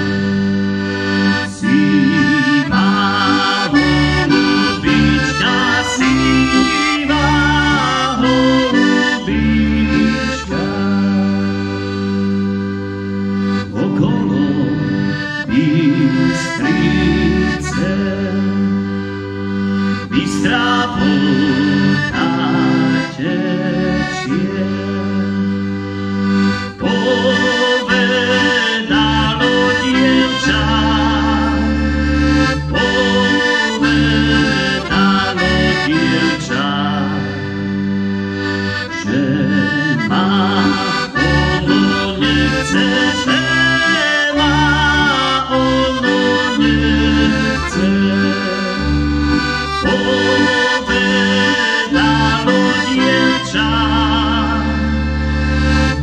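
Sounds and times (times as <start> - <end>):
accordion folk tune: 0.0 - 56.0.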